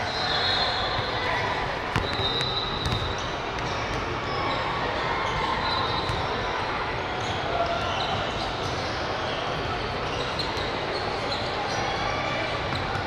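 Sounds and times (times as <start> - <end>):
busy sports hall noise: 0.0 - 13.0
basketball bouncing on hardwood: 1.9 - 3.7.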